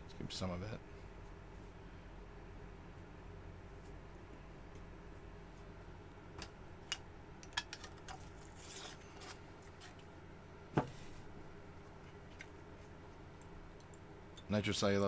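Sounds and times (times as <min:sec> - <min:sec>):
small tools clicking and scraping: 0:07.5 - 0:10.0.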